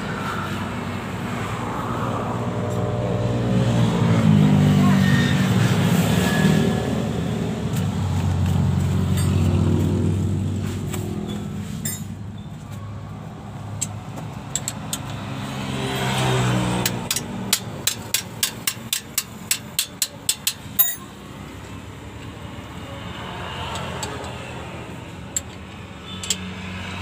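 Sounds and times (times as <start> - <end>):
traffic passing by: 0.0 - 27.0
hand wrench clicking on metal: 13.8 - 15.2, 16.8 - 21.1, 23.7 - 24.4, 25.3 - 26.5.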